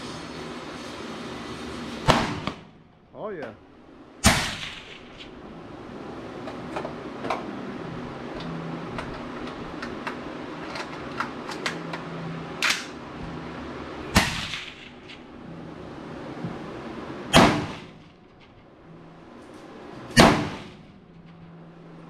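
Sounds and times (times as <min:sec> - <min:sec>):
rifle shot with echo: 0:02.1 - 0:02.7, 0:04.2 - 0:05.2, 0:14.2 - 0:14.9.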